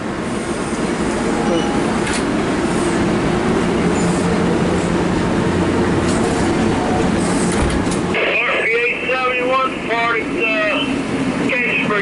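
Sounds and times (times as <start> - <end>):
train wheels rumbling on rails: 0.0 - 8.2.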